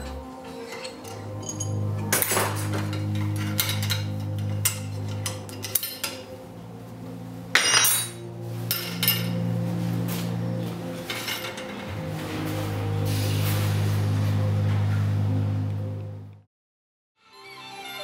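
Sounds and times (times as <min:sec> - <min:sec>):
metal tubing clinking on rollers: 0:00.0 - 0:06.3
metallic scrape: 0:00.0 - 0:06.4, 0:07.5 - 0:15.3
background music: 0:00.0 - 0:16.4, 0:17.2 - 0:18.0.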